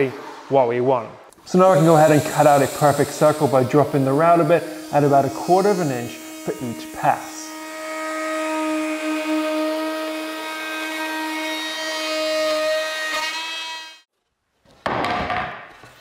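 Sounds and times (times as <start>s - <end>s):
router whining: 1.5s - 14.0s.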